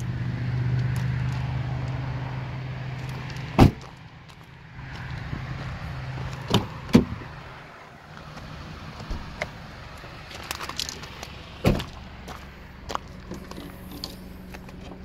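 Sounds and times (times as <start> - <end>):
car door shutting with a thump: 3.6 - 3.8, 6.5 - 7.2, 11.6 - 11.9.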